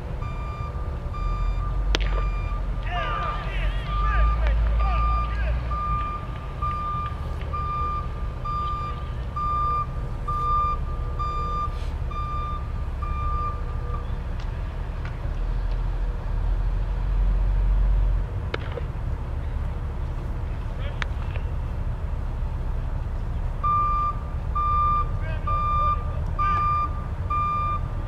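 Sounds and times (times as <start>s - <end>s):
reversing alarm beeping: 0.2s - 14.1s, 23.6s - 28.0s.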